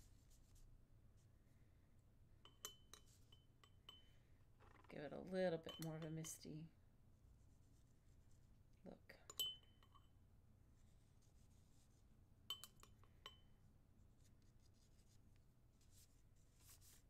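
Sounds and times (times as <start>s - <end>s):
pencil clinking against glass jar: 2.4s - 4.1s, 5.6s - 6.4s, 9.2s - 10.1s, 12.5s - 13.5s
faint scratching: 14.0s - 17.0s.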